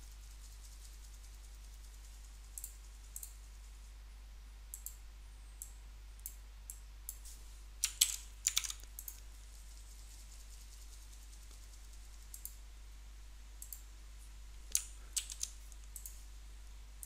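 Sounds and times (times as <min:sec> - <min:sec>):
faint low hum: 0:00.0 - 0:17.0
mouse and keyboard clicks: 0:07.1 - 0:09.3, 0:14.6 - 0:16.2.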